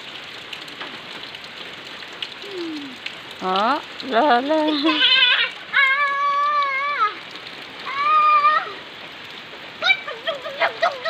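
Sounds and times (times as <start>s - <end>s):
steady rain: 0.0s - 11.0s
young child squealing: 4.9s - 7.2s, 7.8s - 8.8s, 9.8s - 11.0s.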